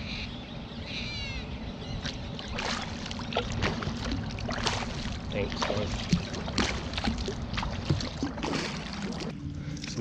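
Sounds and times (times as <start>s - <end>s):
paddle strokes splashing water: 2.0s - 9.9s.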